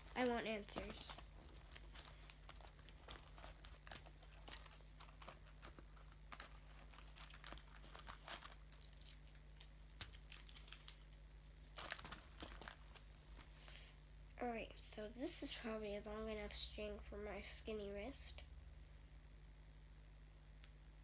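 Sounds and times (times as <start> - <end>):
craft materials clicking and rustling: 0.0 - 13.5
low steady hum: 0.0 - 21.0.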